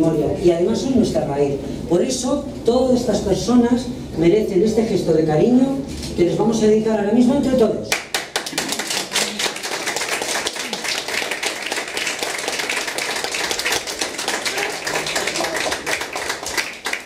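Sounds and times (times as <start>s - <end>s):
crowd applauding: 7.9s - 17.0s.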